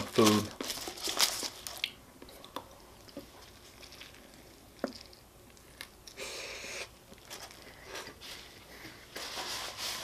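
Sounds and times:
foil wrapper crinkling: 0.0s - 1.9s.

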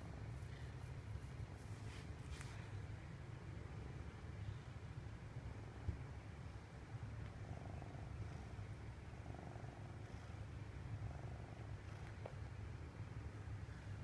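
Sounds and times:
cat purring: 7.2s - 12.8s.

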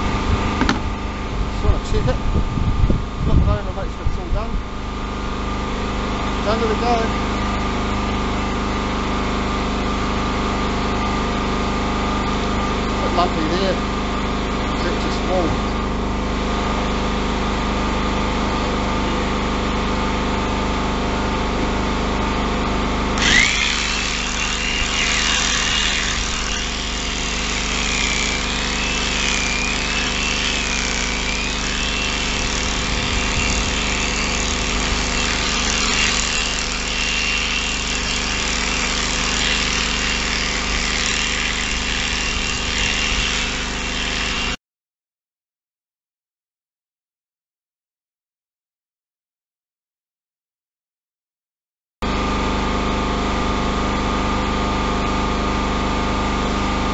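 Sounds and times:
electric shearing handpiece running: 0.0s - 44.6s.

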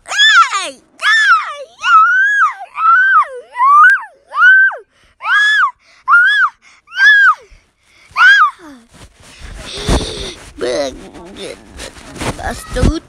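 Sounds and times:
high-pitched voice-like cry: 0.1s - 7.5s, 8.2s - 8.9s, 12.4s - 13.0s.

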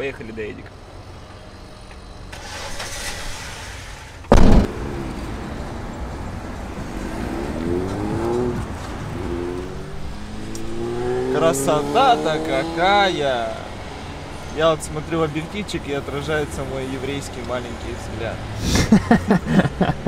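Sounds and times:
car road noise: 0.0s - 20.0s
loud short thump: 4.3s - 4.7s
car engine accelerating: 4.3s - 14.3s.

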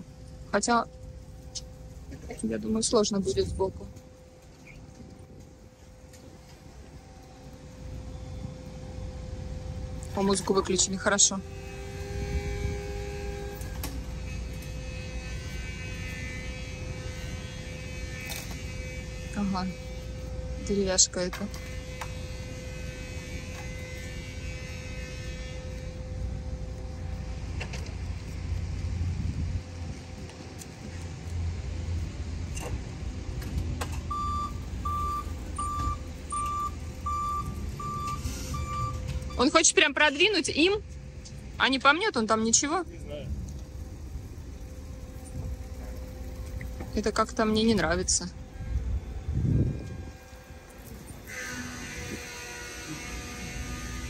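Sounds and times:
low rumble: 0.0s - 51.3s
electric motor humming: 9.4s - 32.2s, 34.6s - 54.0s
reverse warning beeper: 34.1s - 40.6s.

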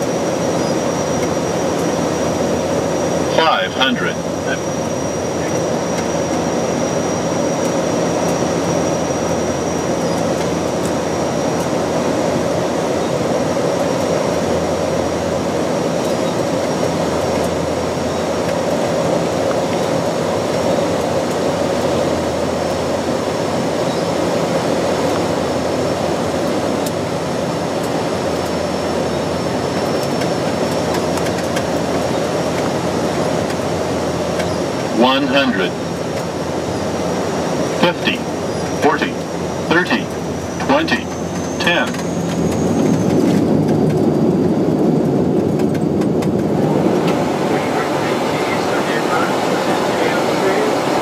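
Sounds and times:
thin high whine: 0.0s - 10.6s, 33.4s - 43.7s
airflow noise: 0.0s - 51.0s
turboprop engine drone: 0.0s - 51.0s.

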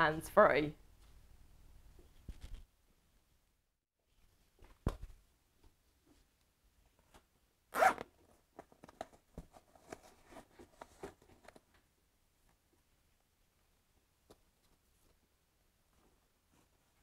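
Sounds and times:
zip pulled open: 7.7s - 8.1s.

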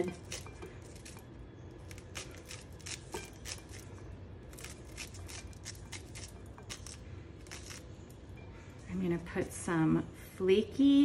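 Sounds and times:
knife cutting corn kernels: 1.9s - 3.9s, 4.5s - 7.8s.

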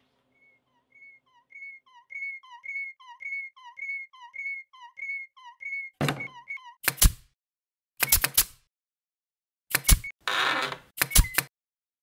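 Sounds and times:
whistle-like chirp: 0.3s - 6.8s.

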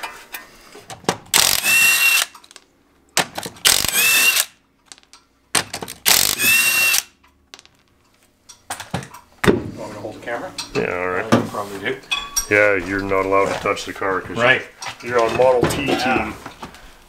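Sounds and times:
impact wrench hammering: 1.3s - 2.4s, 3.2s - 4.5s, 5.6s - 7.2s.

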